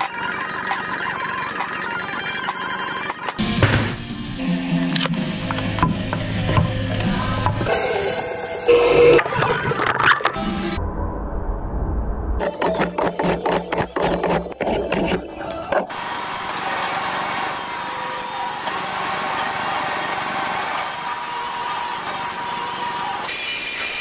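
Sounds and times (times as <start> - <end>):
table saw cutting wood: 0.0 - 3.4, 7.7 - 10.4, 12.4 - 24.0
hand plane on wood: 12.4 - 16.0.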